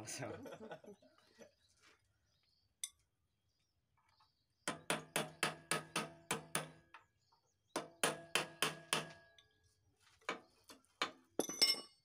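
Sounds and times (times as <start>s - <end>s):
hammer striking steel tube: 7.8s - 9.2s.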